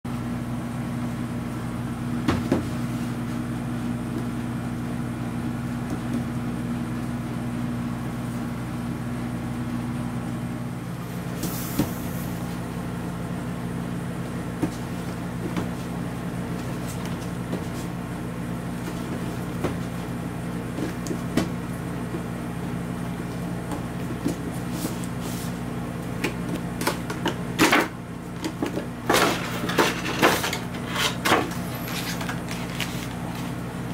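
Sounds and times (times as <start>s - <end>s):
low mechanical hum: 0.1s - 33.9s
packaging rustle: 31.7s - 33.5s.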